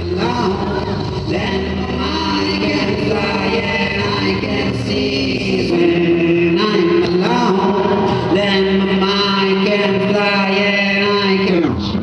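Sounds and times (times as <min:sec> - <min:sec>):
layered wordless vocal loops: 0:00.0 - 0:12.0
man voicing into microphone: 0:05.7 - 0:12.0.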